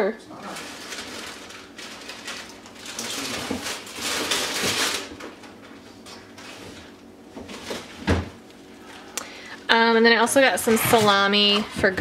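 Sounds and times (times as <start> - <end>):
plastic packaging crinkling: 0.4 - 6.5.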